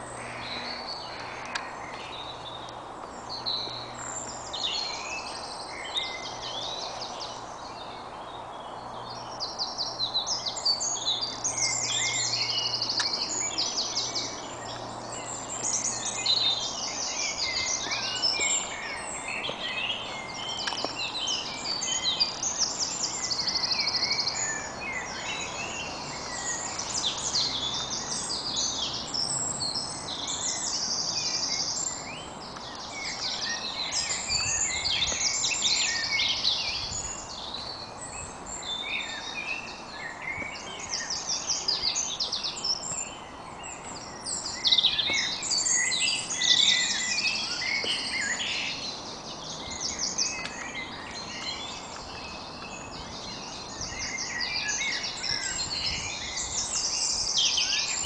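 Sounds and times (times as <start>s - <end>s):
songbirds singing: 0.0s - 58.0s.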